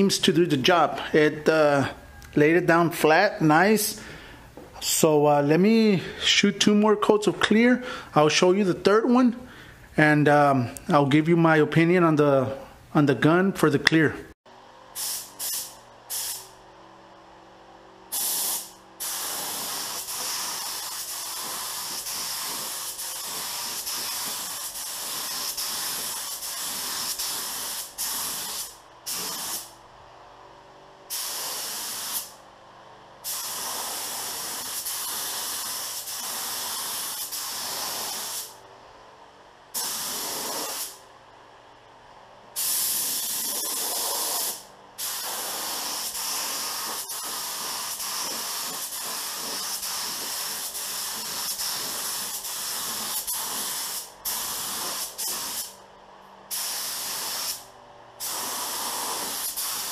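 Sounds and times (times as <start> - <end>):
spray gun air hiss: 14.9 - 16.6, 18.1 - 29.8, 31.1 - 32.4, 33.2 - 38.5, 39.7 - 41.0, 42.6 - 55.8, 56.5 - 59.9.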